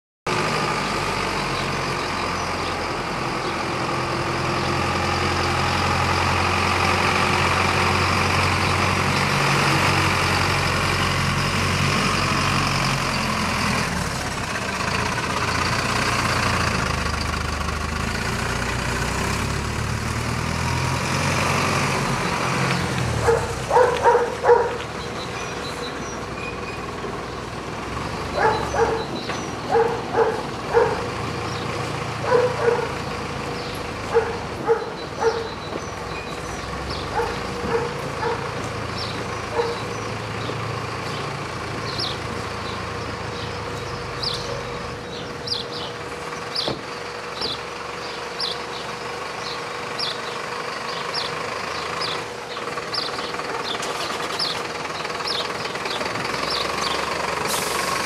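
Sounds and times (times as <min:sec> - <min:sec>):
diesel truck engine passing: 0:00.3 - 0:58.0
dog barking: 0:23.2 - 0:24.8, 0:28.4 - 0:29.1, 0:29.7 - 0:31.1, 0:32.2 - 0:33.0, 0:34.1 - 0:35.6, 0:37.1 - 0:38.6, 0:39.5 - 0:39.9.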